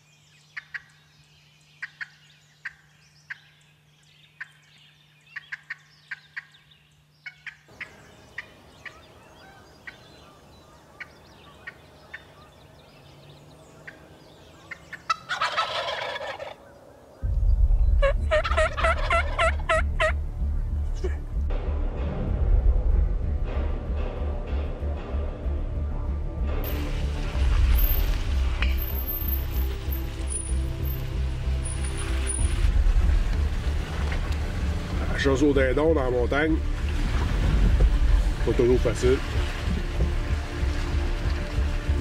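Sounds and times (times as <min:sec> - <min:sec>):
turkeys gobbling: 0:05.4 - 0:06.6, 0:14.6 - 0:17.1, 0:18.0 - 0:20.2
heavy low rumble: 0:17.2 - 0:42.0.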